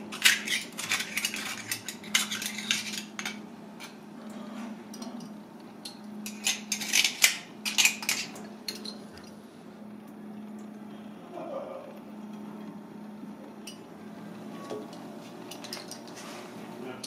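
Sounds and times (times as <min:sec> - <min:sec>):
knife scraping clam shell: 0:00.1 - 0:04.0.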